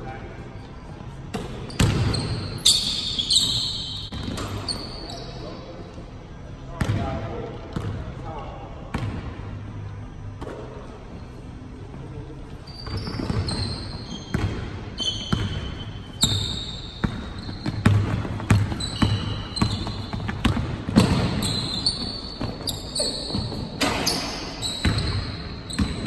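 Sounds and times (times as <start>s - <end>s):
sneakers squeaking on wood: 1.1s - 5.4s, 12.6s - 26.0s
basketball bouncing on wood floor: 16.2s - 22.5s.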